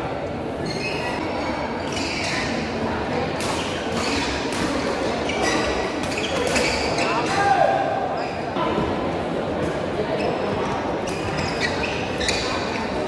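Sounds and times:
rackets hitting shuttlecock: 3.4 - 5.1, 6.0 - 7.4.

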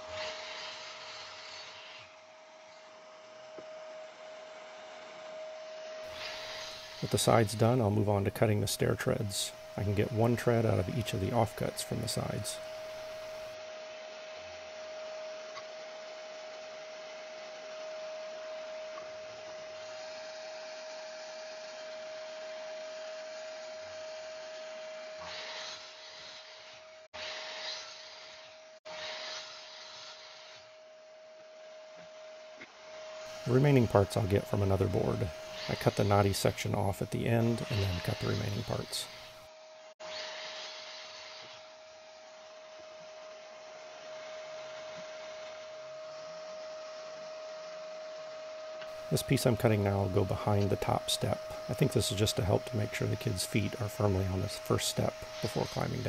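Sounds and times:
saw blade cutting wood: 0.0 - 2.2, 6.1 - 13.6, 22.8 - 30.7, 32.0 - 41.7, 48.8 - 56.0
faint electrical hum: 0.0 - 23.1, 30.6 - 40.0, 41.0 - 56.0
miter saw motor whine: 0.0 - 56.0
low hiss: 6.1 - 13.6, 48.9 - 56.0.

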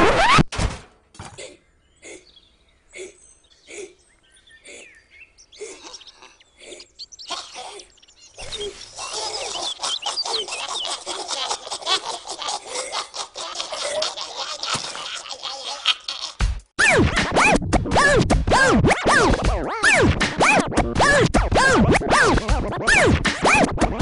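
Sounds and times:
squeaky cartoon voices squealing: 5.8 - 11.7.

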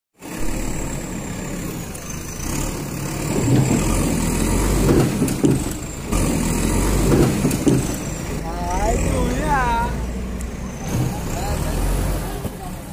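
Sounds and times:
diesel engine running: 0.2 - 12.9
bucket knocking and clanking: 3.4 - 4.0, 4.8 - 5.8, 7.1 - 8.1.

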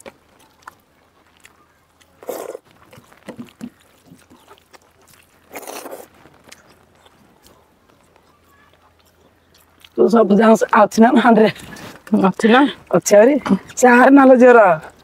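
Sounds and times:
chewing clicks: 0.0 - 10.0
wet mouth noises: 0.0 - 10.0.

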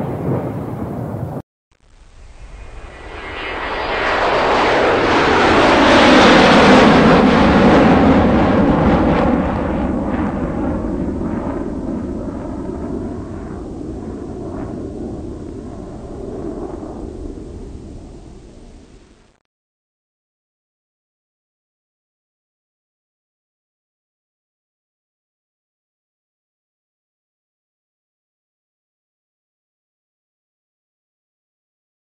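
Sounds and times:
loud rushing wind: 0.0 - 1.4.

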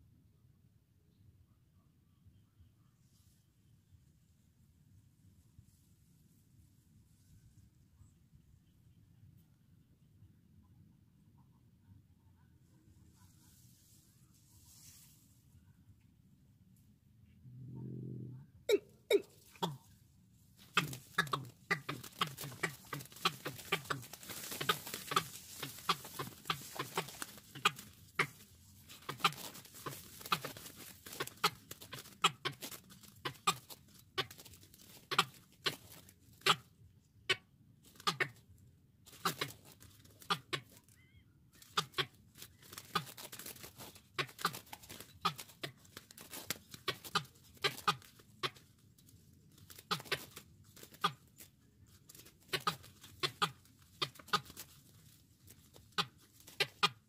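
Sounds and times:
birds deep clucking: 18.7 - 20.0, 20.6 - 38.4, 39.1 - 48.8, 49.6 - 57.0
wing flaps: 20.6 - 36.5, 41.6 - 56.8.

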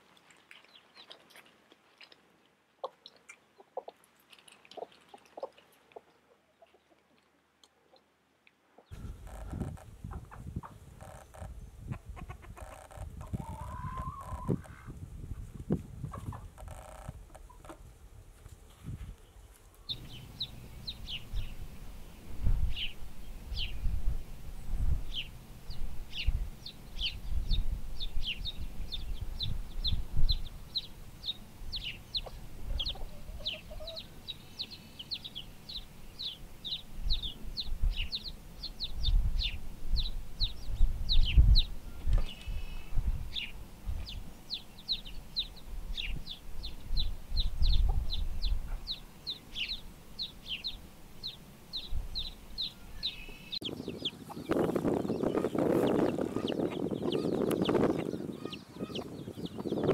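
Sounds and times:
chicks peeping: 8.8 - 15.4, 16.0 - 17.8, 19.9 - 24.0, 24.7 - 59.9.

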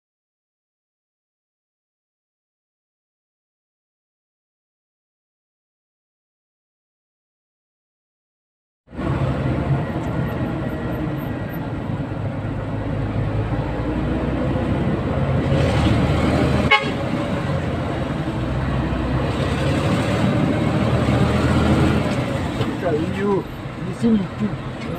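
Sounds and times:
idling and creeping engines: 8.9 - 24.9
vehicle horns tooting: 16.6 - 17.3.

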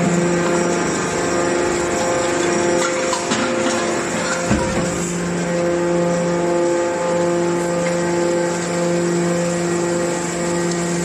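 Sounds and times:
electric motor and pump humming: 0.0 - 11.0.

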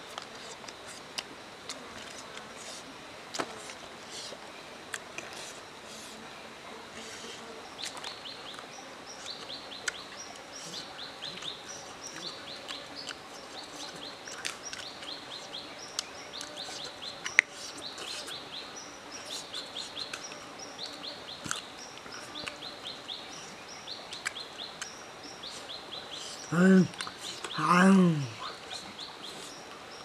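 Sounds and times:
birds chirping: 7.8 - 30.0
chewing clicks: 11.4 - 15.0, 20.0 - 22.6.

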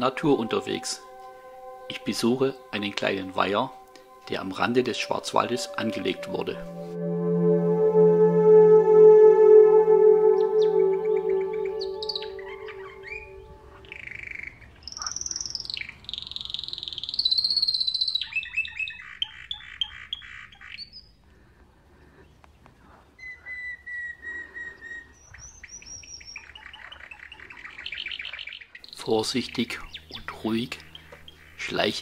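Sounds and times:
bird buzzing trill: 0.0 - 14.0, 28.8 - 32.0
songbirds singing: 11.6 - 21.3, 22.0 - 32.0.

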